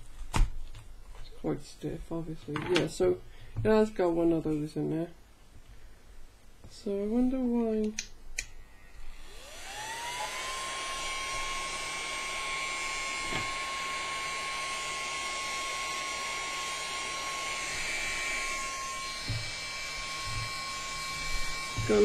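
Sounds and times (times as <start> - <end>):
small vacuum motor whining: 8.7 - 22.0.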